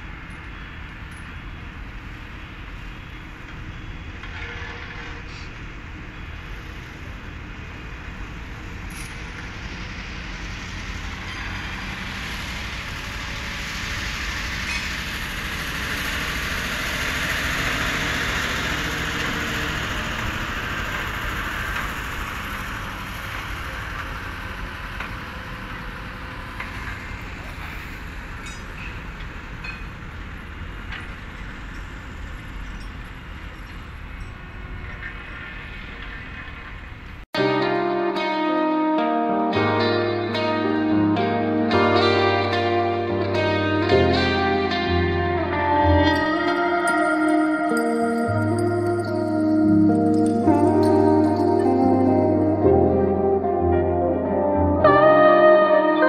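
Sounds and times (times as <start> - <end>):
diesel engine rumbling: 0.0 - 37.3.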